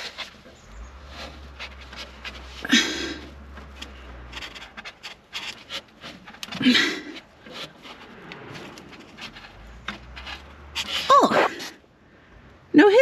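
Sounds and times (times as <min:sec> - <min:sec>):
hand rubbing hose fitting: 0:00.0 - 0:11.7
person panting with effort: 0:02.6 - 0:03.4, 0:06.5 - 0:07.3.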